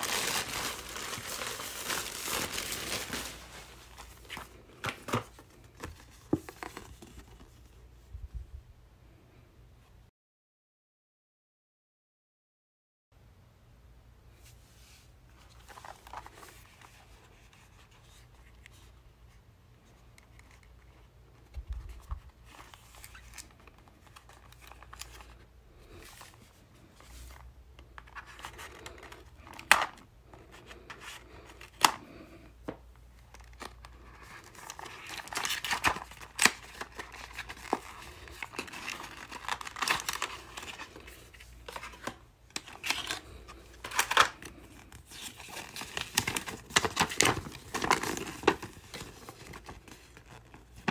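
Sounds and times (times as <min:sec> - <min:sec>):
packaging rustling and tearing: 0:00.0 - 0:07.5, 0:33.2 - 0:50.9.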